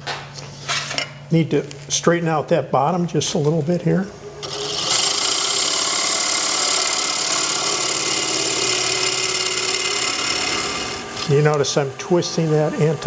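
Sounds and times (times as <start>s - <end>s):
lathe humming: 3.3s - 13.0s.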